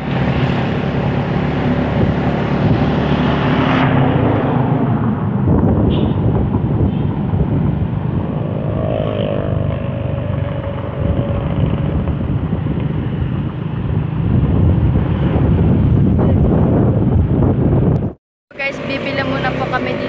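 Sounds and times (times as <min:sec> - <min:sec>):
wind noise: 0:00.0 - 0:18.2
motorcycle engine at speed: 0:06.7 - 0:15.7.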